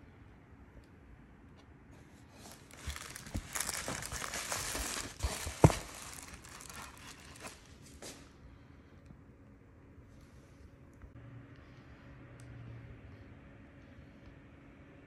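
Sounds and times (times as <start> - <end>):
paperboard box being opened: 2.3 - 7.8
plastic bag crinkling: 2.4 - 8.0.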